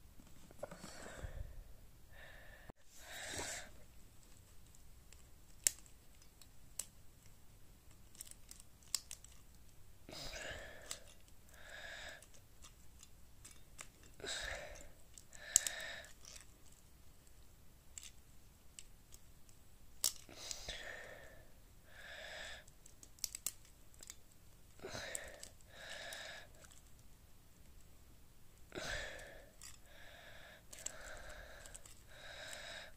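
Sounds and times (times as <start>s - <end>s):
person breathing: 0.5s - 3.9s, 10.1s - 12.4s, 14.1s - 16.4s, 20.3s - 22.7s, 24.8s - 26.9s, 28.7s - 32.9s
puzzle cube clicking: 8.0s - 9.5s, 22.6s - 24.2s.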